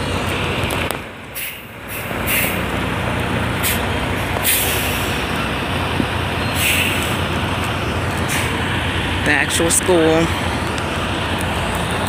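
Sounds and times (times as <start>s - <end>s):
diesel truck engine running: 0.0s - 12.0s
short air hisses: 1.4s - 2.6s, 4.4s - 5.1s, 6.6s - 7.1s.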